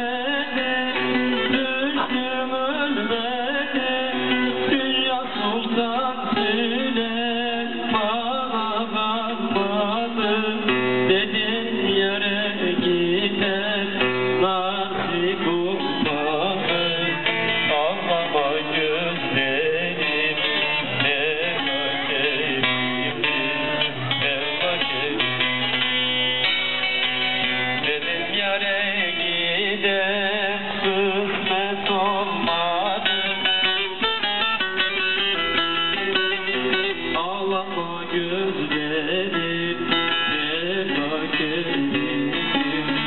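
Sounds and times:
man singing folk song: 0.0s - 43.0s
plucked long-necked lute: 9.2s - 43.0s.

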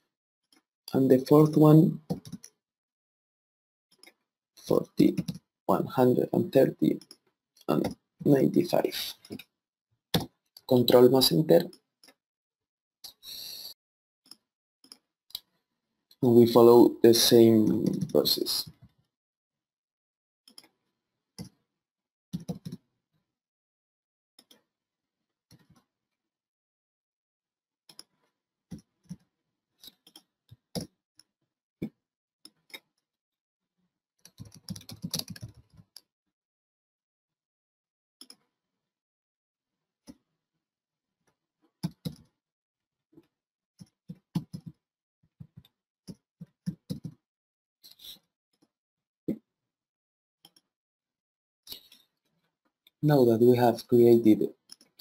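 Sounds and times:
computer keyboard typing: 34.3s - 35.6s.

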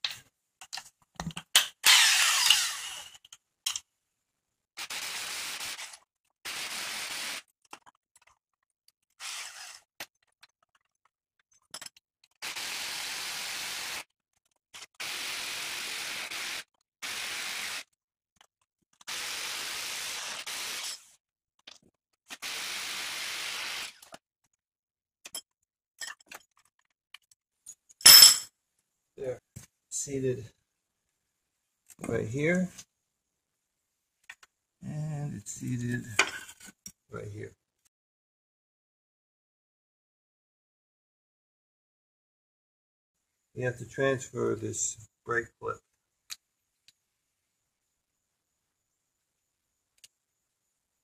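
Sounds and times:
impact wrench bursts: 1.8s - 3.0s.

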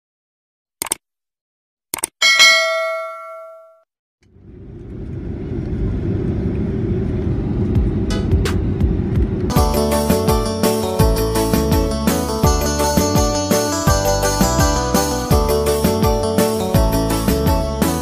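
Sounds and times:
mouse clicks: 0.8s - 1.0s
bright bell ding: 2.2s - 3.8s
jet engines rumbling in cabin: 4.3s - 9.5s.

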